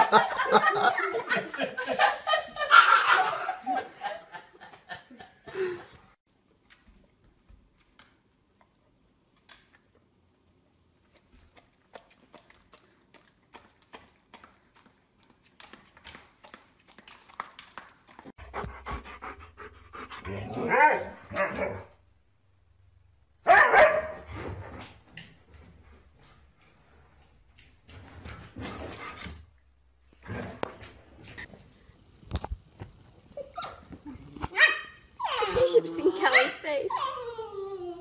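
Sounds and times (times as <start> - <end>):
people laughing: 0.0 - 6.0.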